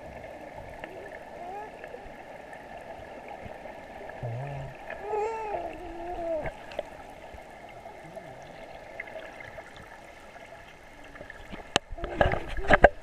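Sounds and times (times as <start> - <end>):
dull underwater noise: 0.0 - 13.0
muffled voice: 4.2 - 4.8.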